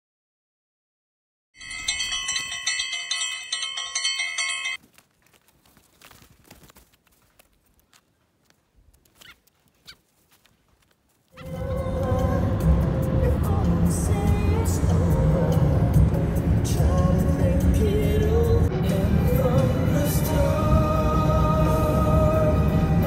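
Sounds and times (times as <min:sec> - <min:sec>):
bright bell-like chime: 0:01.6 - 0:04.8.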